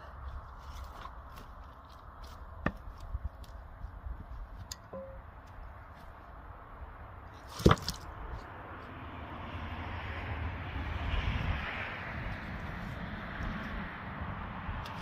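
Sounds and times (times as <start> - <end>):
firewood knocking: 2.2 - 3.6, 7.5 - 8.0
loud wooden clunk: 7.5 - 8.0.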